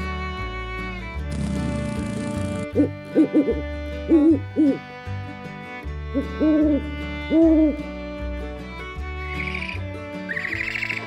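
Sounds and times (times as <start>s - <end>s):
soft background music with bass: 0.0s - 11.0s
owl hooting: 2.7s - 4.8s, 6.2s - 7.7s, 9.4s - 11.0s.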